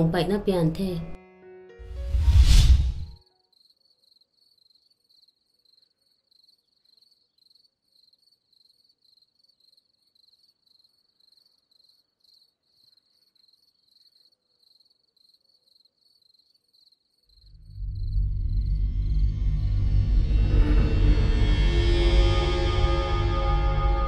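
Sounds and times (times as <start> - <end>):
cricket chirping: 3.2 - 19.7.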